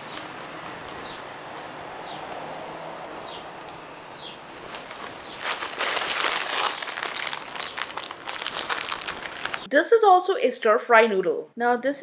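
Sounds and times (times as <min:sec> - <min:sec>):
plastic packet crinkling: 0:00.0 - 0:01.0, 0:04.6 - 0:09.7
bird chirps: 0:00.9 - 0:04.4
shopping bag rustling: 0:04.5 - 0:09.7.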